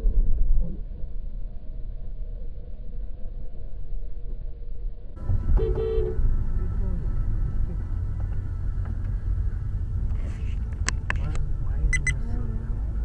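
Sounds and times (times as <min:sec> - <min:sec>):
road and engine rumble in car: 0:05.0 - 0:13.0
car horn honk: 0:05.5 - 0:06.3.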